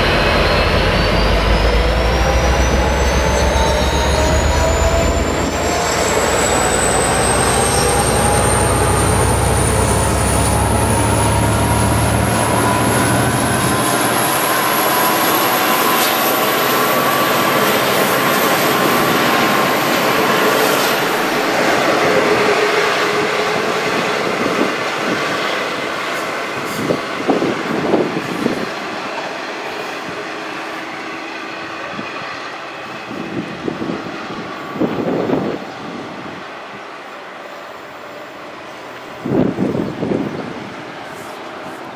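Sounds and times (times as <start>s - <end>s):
high wheel squeal: 0.0s - 21.3s
train carriages rumbling on rails: 0.0s - 37.0s.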